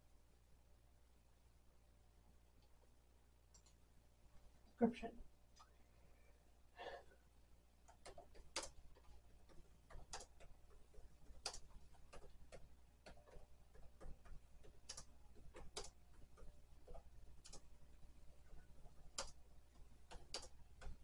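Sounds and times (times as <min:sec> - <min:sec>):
laptop keyboard keystrokes: 0:07.8 - 0:17.7, 0:18.8 - 0:21.0.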